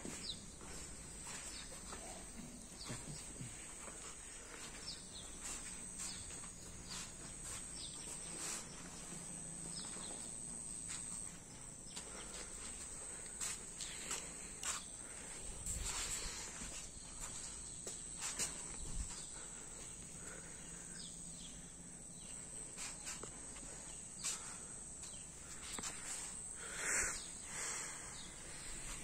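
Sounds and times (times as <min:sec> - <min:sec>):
insect chirps: 0:00.0 - 0:29.0
insects droning: 0:00.0 - 0:29.0.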